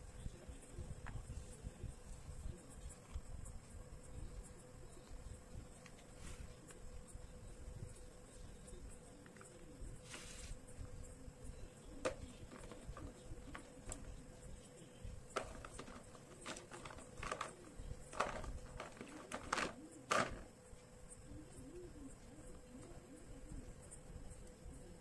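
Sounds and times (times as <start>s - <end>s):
clay balls clacking in plastic tub: 12.0s - 14.2s, 15.3s - 20.5s.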